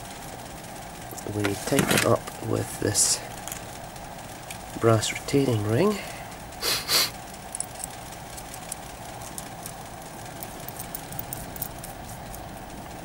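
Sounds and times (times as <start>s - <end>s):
steady background hum: 0.0s - 13.0s
small metallic clicks: 7.5s - 12.5s.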